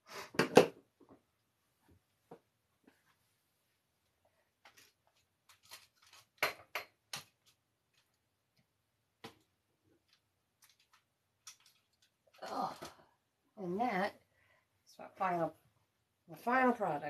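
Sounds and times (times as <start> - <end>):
rustles of objects handled: 2.8 - 8.6, 9.2 - 13.1
clicks of objects handled: 4.6 - 8.2, 9.2 - 13.0.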